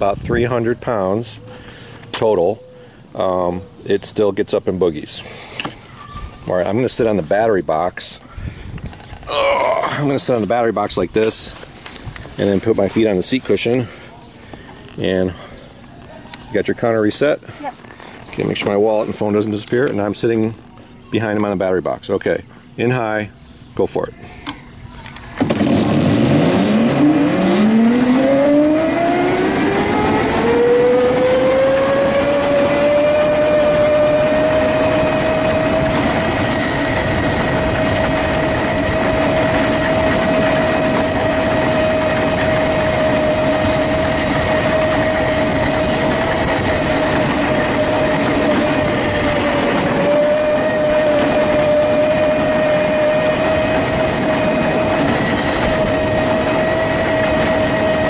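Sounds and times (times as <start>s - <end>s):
tyre and road noise: 24.9s - 58.0s
electric go-kart motor whining: 25.4s - 58.0s.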